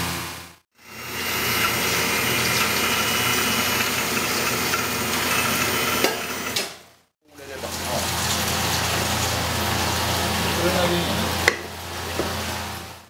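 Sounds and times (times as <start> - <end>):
food processor motor running: 0.7 - 6.8.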